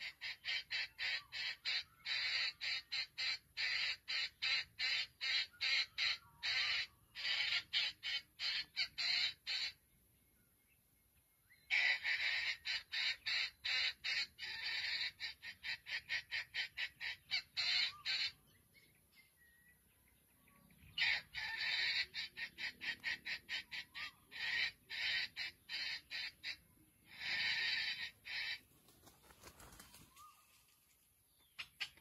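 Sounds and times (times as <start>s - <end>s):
chicken clucking: 31.4s - 32.0s.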